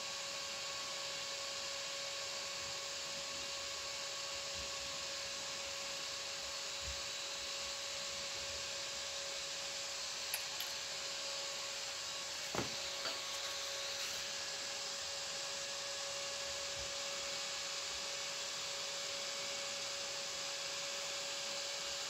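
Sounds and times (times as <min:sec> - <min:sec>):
short knock: 0:12.5 - 0:12.8.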